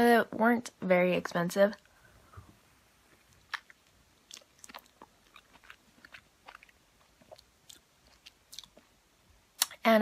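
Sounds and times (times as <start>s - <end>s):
chewing mouth clicks and smacks: 3.3s - 8.9s.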